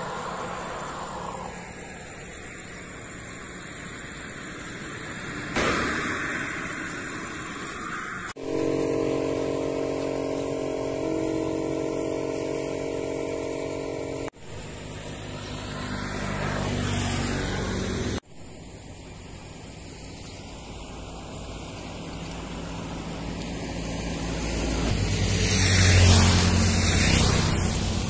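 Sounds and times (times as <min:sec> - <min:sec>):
motorcycle engine revving: 0:08.3 - 0:18.2, 0:20.8 - 0:28.0.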